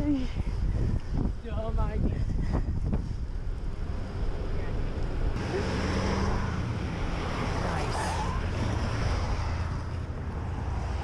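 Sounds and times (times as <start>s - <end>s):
wind on microphone: 0.0s - 5.5s
road and traffic rumble: 0.0s - 11.0s.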